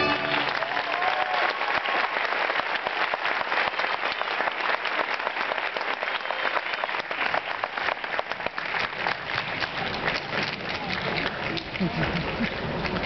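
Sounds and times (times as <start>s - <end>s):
recital music: 0.0s - 0.6s
audience applauding: 0.0s - 13.0s.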